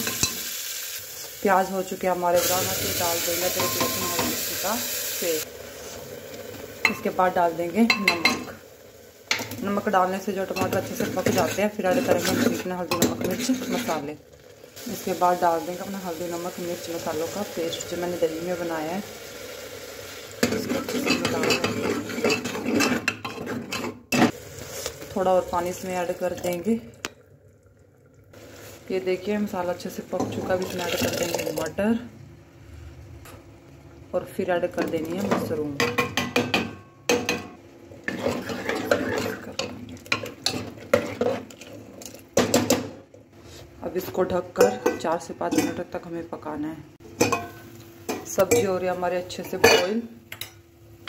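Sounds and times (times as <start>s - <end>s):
spoon stirring in metal pot: 10.6s - 14.0s, 20.4s - 24.0s, 38.1s - 42.7s.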